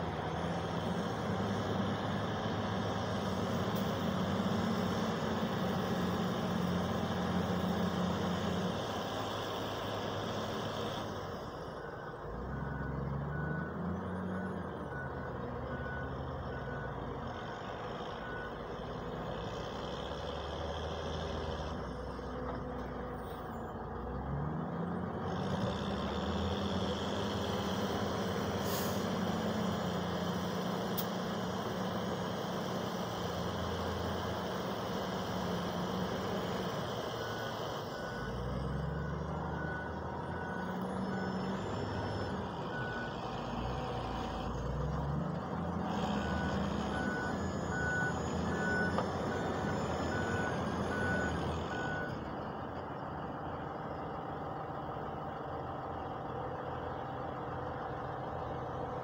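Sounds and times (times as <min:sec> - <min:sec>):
wheel loader diesel engine revving: 0:00.0 - 0:59.0
reversing alarm beeping: 0:11.6 - 0:18.8, 0:31.8 - 0:52.8.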